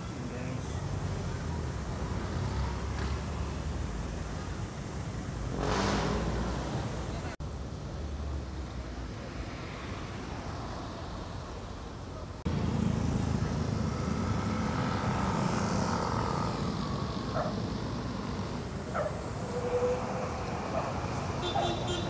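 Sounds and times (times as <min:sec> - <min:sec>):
rumble of passing vehicles: 0:00.0 - 0:22.0
motorcycle passing: 0:12.5 - 0:22.0.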